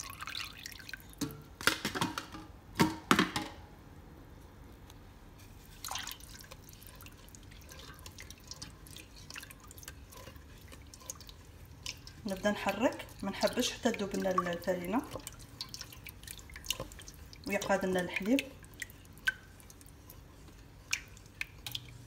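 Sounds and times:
milk trickling into saucepan: 0:00.0 - 0:01.3, 0:05.4 - 0:22.0
wooden spoon stirring in pan: 0:05.4 - 0:22.0.

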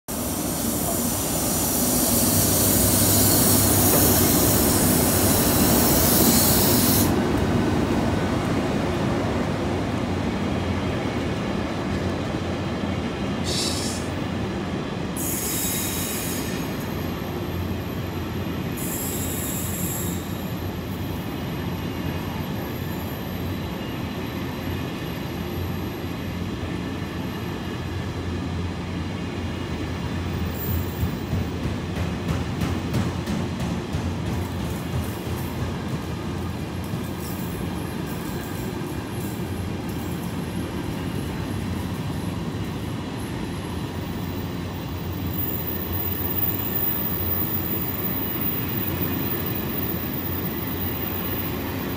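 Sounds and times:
locomotives passing with hiss: 0:00.1 - 0:07.4, 0:13.4 - 0:17.0.

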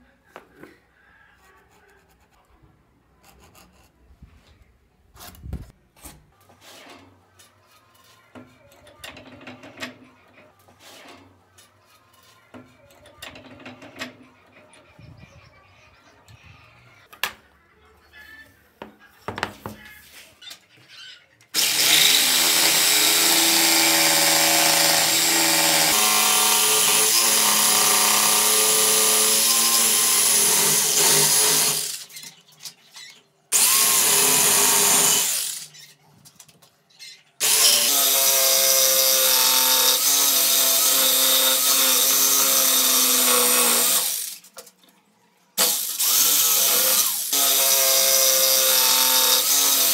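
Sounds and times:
electric jigsaw cutting wood: 0:21.6 - 0:32.1, 0:33.5 - 0:35.7, 0:37.4 - 0:44.4, 0:45.6 - 0:49.9.

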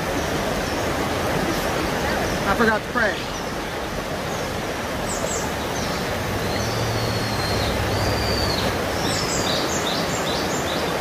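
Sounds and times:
fast-flowing river rushing: 0:00.0 - 0:11.0.

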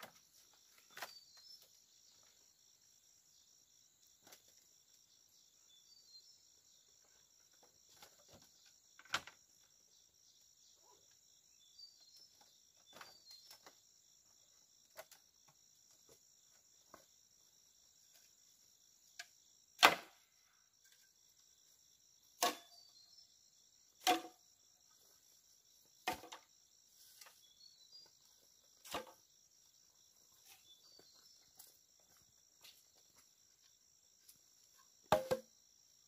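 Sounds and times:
high-pitched insect chorus: 0:00.0 - 0:36.0
sharp loud knocks: 0:35.1 - 0:35.4.

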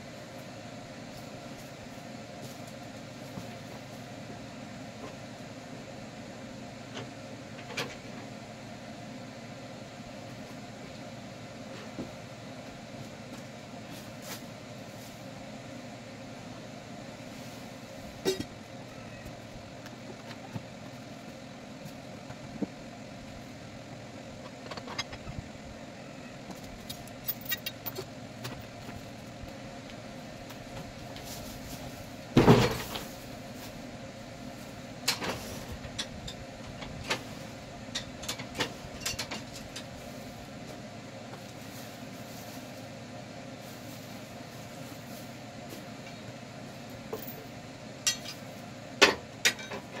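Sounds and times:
machine idling hum: 0:00.0 - 0:49.5
metal chain clanks: 0:27.2 - 0:28.0.

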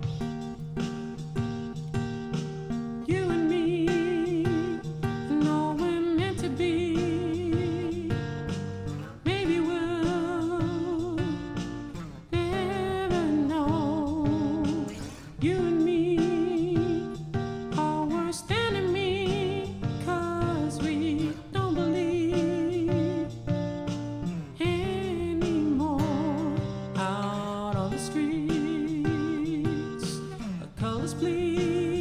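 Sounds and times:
strummed acoustic guitar: 0:00.0 - 0:32.0
man singing with vibrato: 0:09.2 - 0:11.6, 0:12.3 - 0:23.6, 0:24.6 - 0:32.0.

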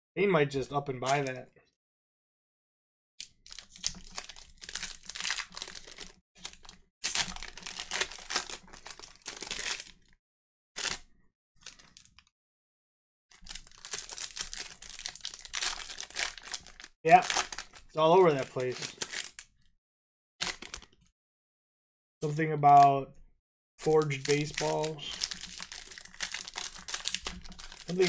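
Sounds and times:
foil wrappers tearing and crinkling: 0:03.5 - 0:10.1, 0:10.8 - 0:11.0, 0:13.4 - 0:19.4, 0:23.9 - 0:28.0.

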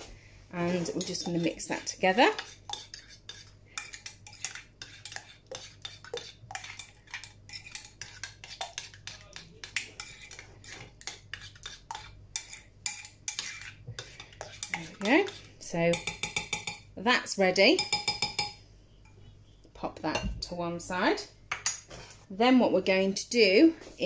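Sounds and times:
teaspoon stirring in glass jug: 0:00.6 - 0:16.8.

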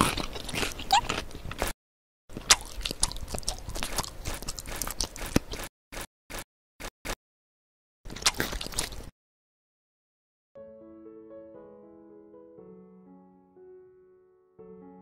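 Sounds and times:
crunchy food chewing: 0:00.0 - 0:06.9, 0:08.1 - 0:09.1.

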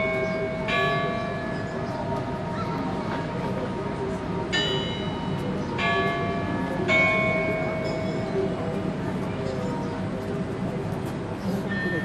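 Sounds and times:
bells ringing: 0:00.0 - 0:02.6, 0:03.7 - 0:09.6, 0:11.7 - 0:12.0.

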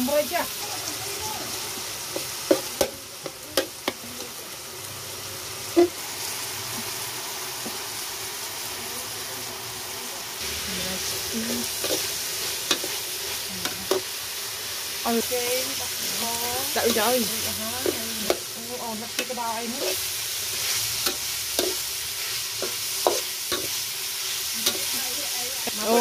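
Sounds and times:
meat sizzling in a wok: 0:00.0 - 0:26.0
spatula scraping a pan: 0:16.8 - 0:25.1.

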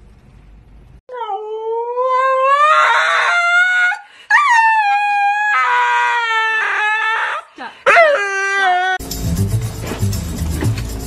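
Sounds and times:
husky howling: 0:01.7 - 0:09.0.

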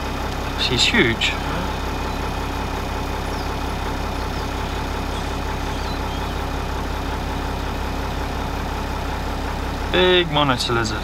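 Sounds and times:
vehicle engine idling: 0:00.0 - 0:11.0
faint bird chirps: 0:01.6 - 0:02.5, 0:03.1 - 0:07.3.

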